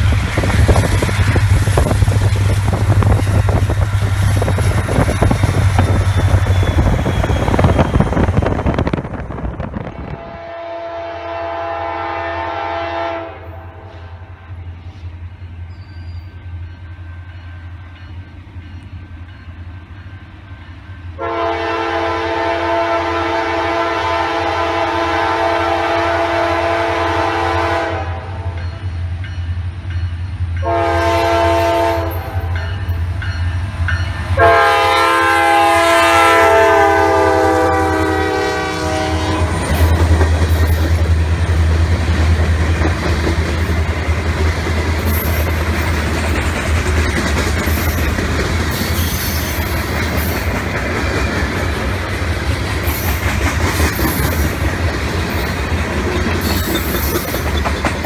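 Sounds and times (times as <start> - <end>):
locomotives rumbling by: 0.0 - 10.2, 37.8 - 58.0
locomotive air horn blasts: 10.0 - 14.3, 21.2 - 28.5, 30.6 - 32.6, 34.4 - 39.9
train cars clattering over rail joints: 39.6 - 58.0.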